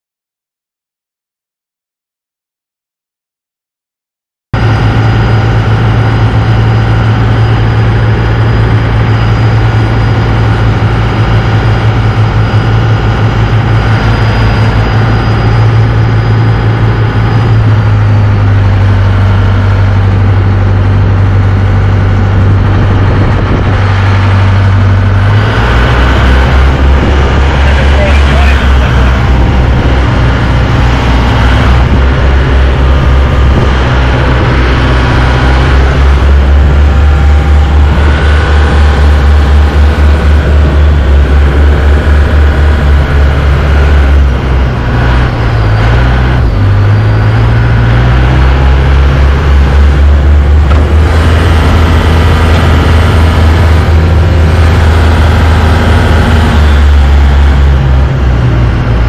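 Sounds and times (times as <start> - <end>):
boat engine running: 4.6 - 59.0.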